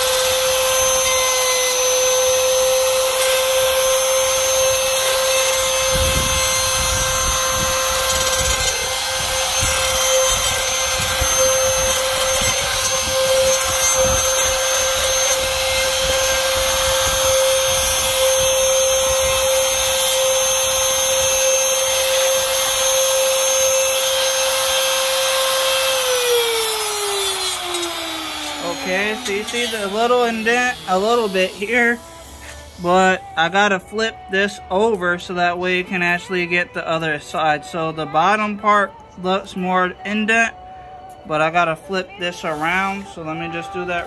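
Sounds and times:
router motor whining: 0:00.0 - 0:33.6
bit scraping metal: 0:03.0 - 0:33.6.

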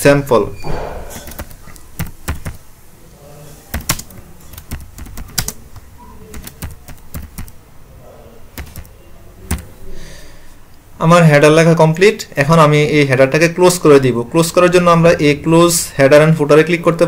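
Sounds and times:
keyboard key clicks: 0:01.2 - 0:02.6, 0:03.7 - 0:07.6, 0:08.6 - 0:08.9, 0:09.5 - 0:09.7.

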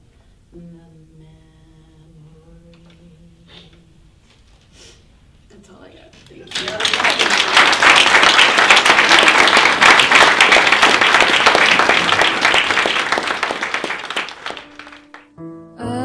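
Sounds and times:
audience applauding: 0:06.4 - 0:15.3
soft music: 0:14.4 - 0:16.0.

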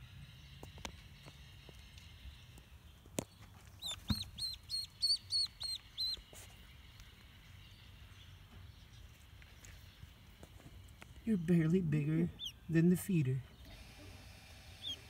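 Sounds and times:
duckling peeping: 0:03.4 - 0:08.0, 0:11.3 - 0:15.0.

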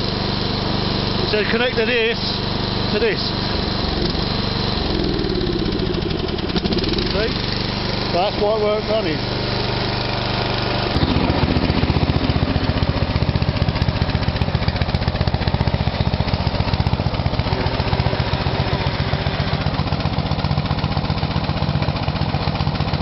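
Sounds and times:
ride-on mower engine chugging: 0:00.0 - 0:23.0.

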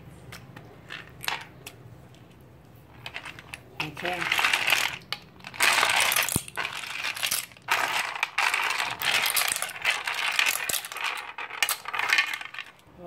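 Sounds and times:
shells clattering in a clay mortar: 0:03.8 - 0:12.8.

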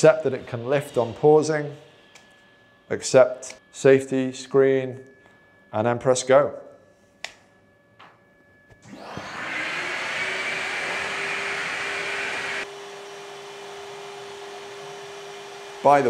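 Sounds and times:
router spindle rushing: 0:08.9 - 0:16.0.

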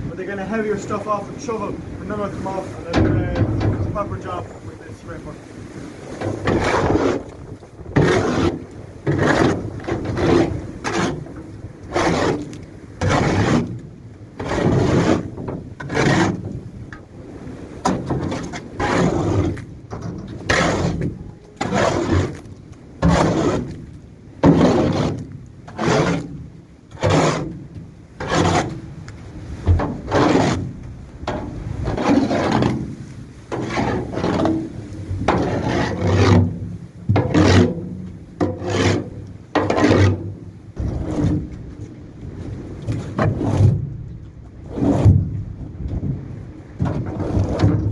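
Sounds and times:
shovel scraping manure on floor: 0:06.3 - 0:07.4, 0:08.0 - 0:13.8, 0:14.4 - 0:16.5, 0:17.9 - 0:27.6, 0:28.2 - 0:28.8, 0:30.0 - 0:30.7, 0:31.8 - 0:34.7, 0:35.3 - 0:36.6, 0:37.2 - 0:37.8, 0:38.4 - 0:41.4.

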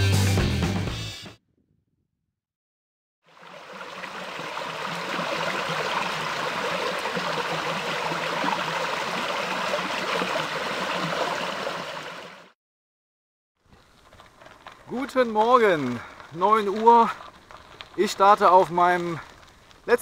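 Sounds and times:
brook babbling over stones: 0:03.3 - 0:12.5.

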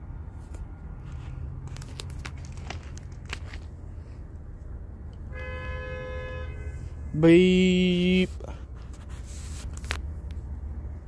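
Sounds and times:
train horn: 0:05.3 - 0:06.9.

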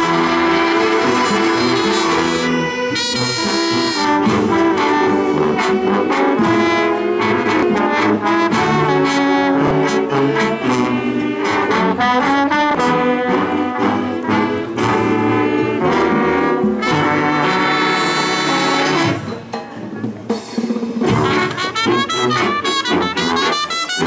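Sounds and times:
trumpets and trombones playing: 0:00.0 - 0:19.5, 0:21.0 - 0:24.0
drum hits: 0:19.0 - 0:22.6.

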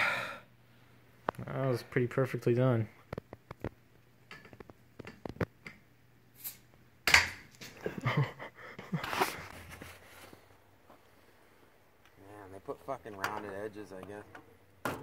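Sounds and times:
breathy noises: 0:00.0 - 0:00.5.

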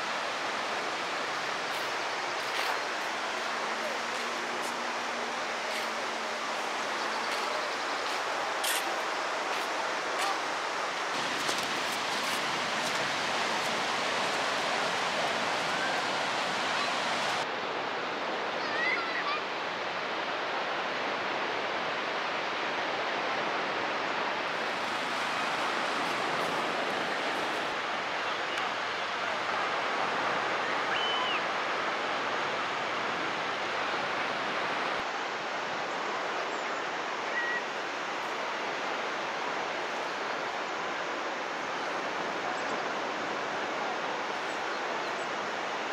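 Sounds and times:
sea surf washing onto beach: 0:00.0 - 0:36.4.

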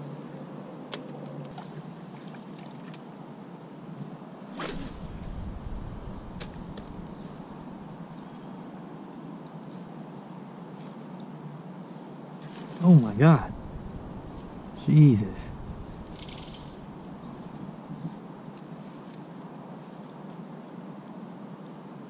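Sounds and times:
low rumble: 0:04.6 - 0:08.3, 0:12.9 - 0:18.1.

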